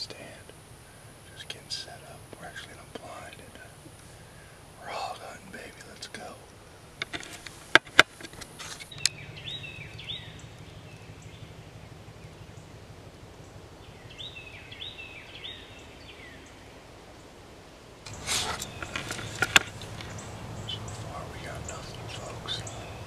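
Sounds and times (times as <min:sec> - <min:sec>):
close rustling: 0:00.0 - 0:14.2, 0:18.0 - 0:23.0
faint low hum: 0:00.0 - 0:23.0
high animal calls: 0:18.1 - 0:23.0.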